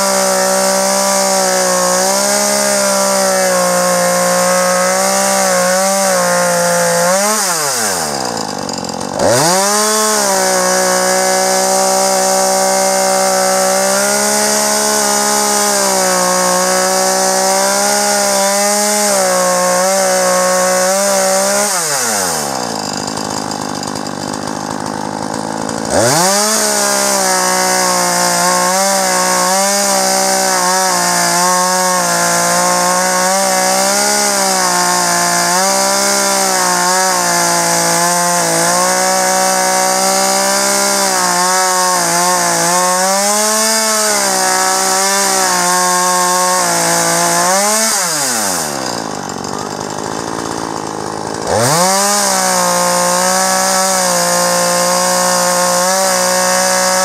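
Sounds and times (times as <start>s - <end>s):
chainsaw cutting through log: 0.0s - 57.0s.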